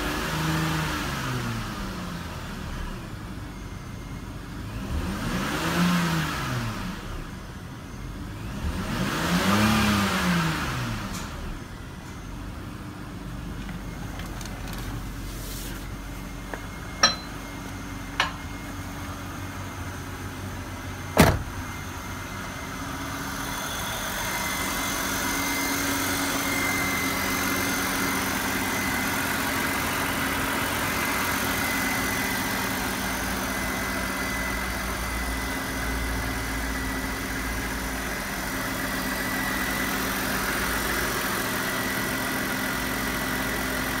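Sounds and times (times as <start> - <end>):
car engine idling: 11.6 - 44.0
high-pitched whine: 15.8 - 41.5
car door shutting: 21.1 - 21.8.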